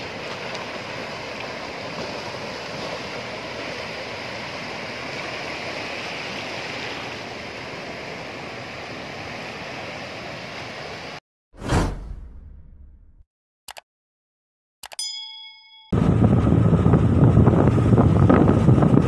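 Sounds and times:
floodwater rushing across road: 0.0 - 11.2
loud ding: 15.0 - 16.0.

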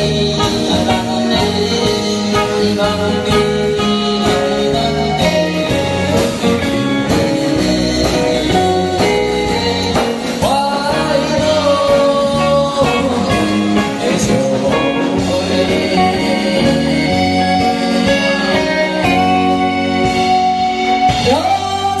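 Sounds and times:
band accompaniment: 0.0 - 22.0
man singing into a microphone: 0.0 - 22.0
steady drum beat: 0.0 - 22.0.

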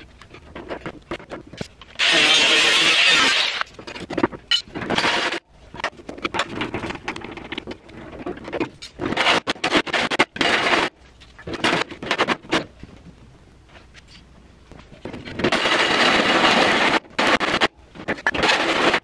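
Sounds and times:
hole saw drilling sheet metal: 2.0 - 3.7.

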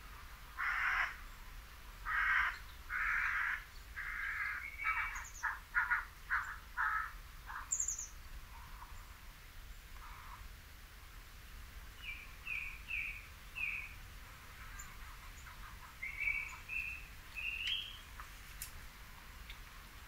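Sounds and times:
harsh rasping animal calls: 0.6 - 1.2, 2.0 - 7.8
small bird chirping: 4.6 - 5.6, 7.5 - 9.1, 12.0 - 18.2.

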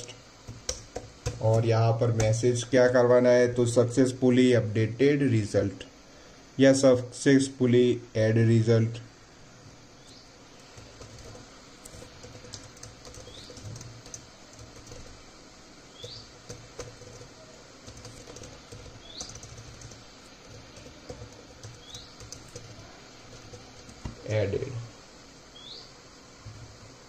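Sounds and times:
keyboard typing: 0.0 - 2.3, 10.6 - 15.2, 16.0 - 24.8
bird chirping: 15.9 - 16.3, 18.9 - 19.5, 21.7 - 22.4, 25.5 - 26.0.

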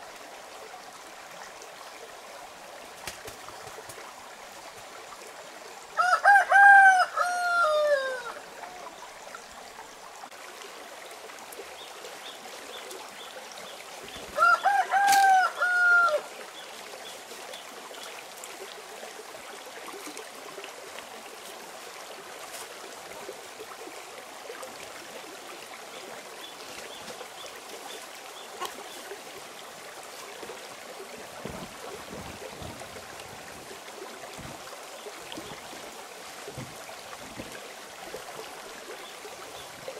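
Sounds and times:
stream rushing: 0.0 - 39.9
rooster crowing: 6.0 - 8.4, 14.4 - 16.3.

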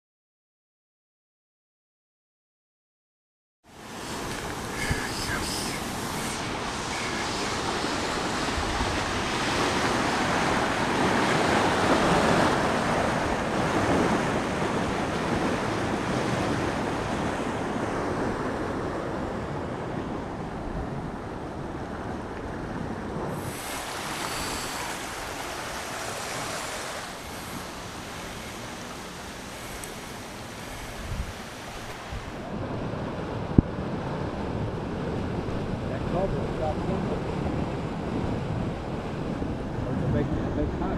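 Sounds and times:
floodwater rushing: 3.8 - 18.2, 23.2 - 32.7.

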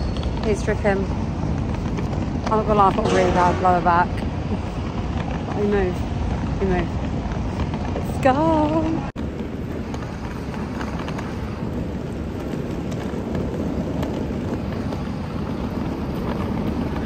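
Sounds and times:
airport terminal din: 2.4 - 7.0.

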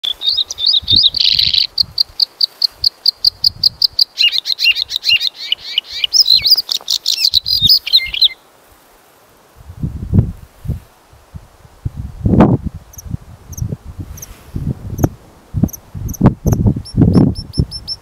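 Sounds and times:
bird singing: 0.0 - 8.4.

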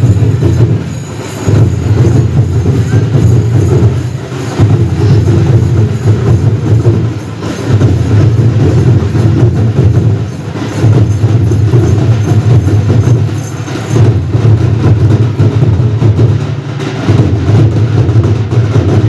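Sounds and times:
crowd din: 0.0 - 15.2
large drums beating: 0.0 - 19.0.

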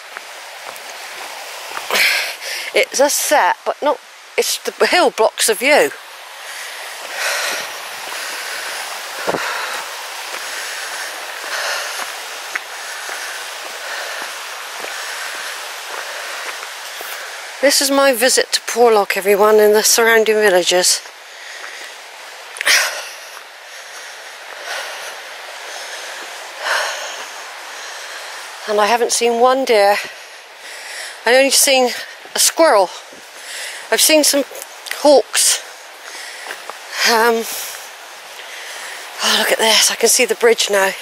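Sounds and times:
brook running over stones: 0.0 - 41.0
small stream rushing: 0.0 - 41.0
person breathing close to microphone: 6.4 - 17.5.

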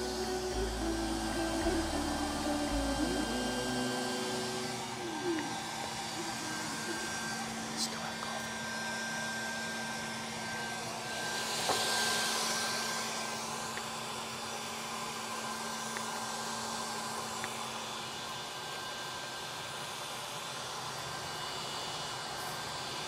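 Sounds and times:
low hum: 0.0 - 8.4
exhaust fans rushing air: 0.0 - 17.8.

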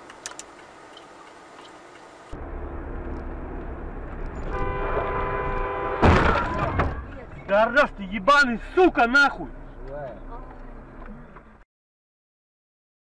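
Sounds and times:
car driving rumble: 0.0 - 11.6
car horn: 4.4 - 7.1.

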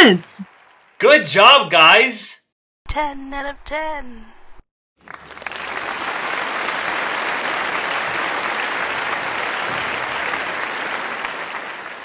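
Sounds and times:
crowd applauding: 0.0 - 2.1, 5.0 - 12.0.

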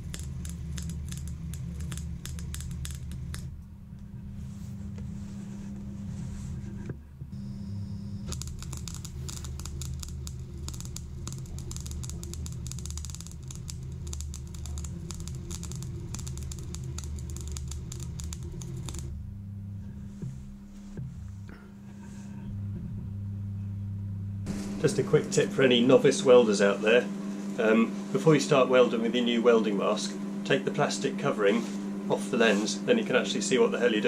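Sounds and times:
welding arc crackling: 0.0 - 3.6, 7.3 - 19.2, 24.4 - 27.6
steady low hum: 0.0 - 34.0.

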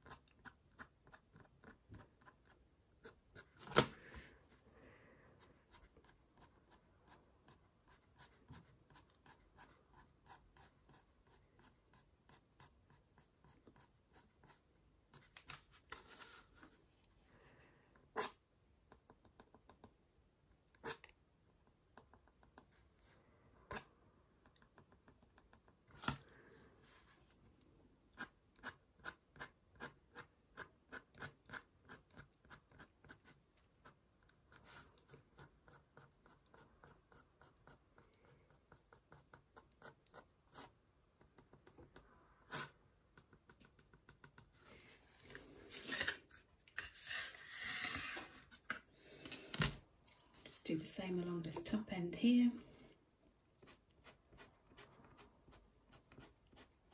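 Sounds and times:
pen scratching on paper: 28.2 - 40.8
ruler sliding across paper: 44.6 - 48.7.

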